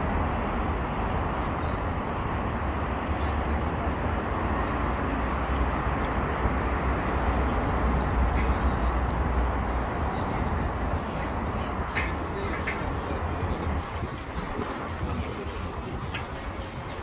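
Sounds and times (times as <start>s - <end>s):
low city rumble: 0.0s - 17.0s.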